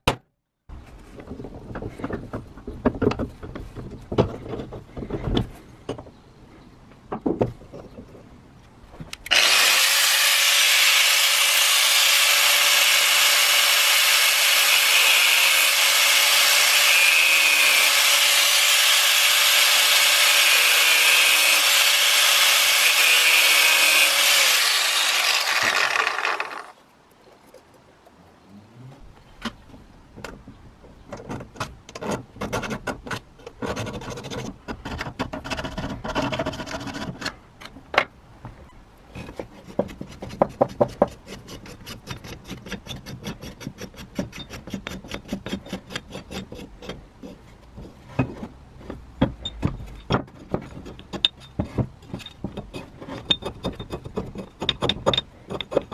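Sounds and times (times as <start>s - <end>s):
hand file rasping metal: 9.3s - 26.7s, 39.6s - 47.4s
angle grinder cutting steel: 9.3s - 26.8s.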